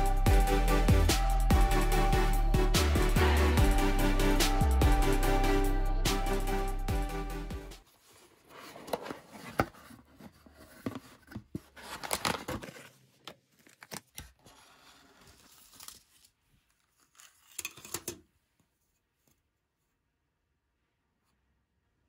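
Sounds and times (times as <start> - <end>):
cardboard box opening: 8.0 - 16.3.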